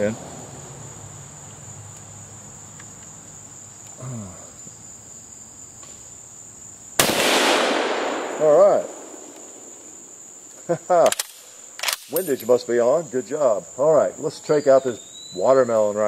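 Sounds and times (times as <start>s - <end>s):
high insect drone: 0.0s - 16.0s
rifle shot with echo: 7.0s - 9.7s.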